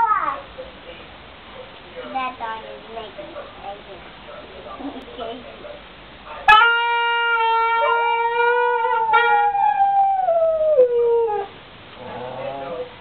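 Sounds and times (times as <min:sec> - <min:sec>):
dog howling: 0:06.5 - 0:12.9.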